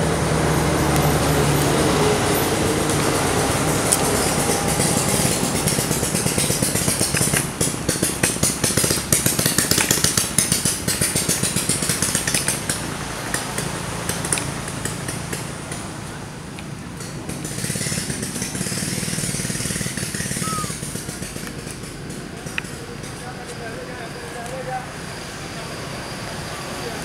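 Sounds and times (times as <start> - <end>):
small engine running: 0.0 - 27.0
rapid pulsing rattle: 2.1 - 16.0, 16.8 - 24.1.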